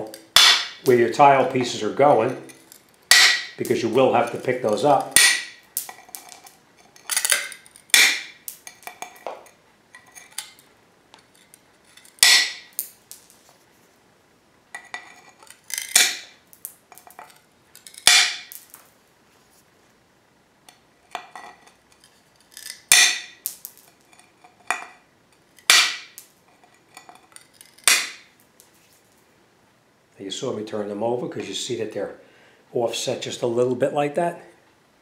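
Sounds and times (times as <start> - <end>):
tile crunches and clinks: 14.8 - 18.9.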